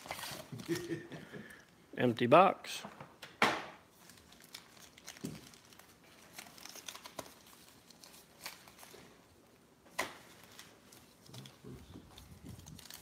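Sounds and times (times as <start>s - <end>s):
foil packs crinkling: 0.0s - 1.0s, 3.9s - 9.2s, 10.2s - 13.0s.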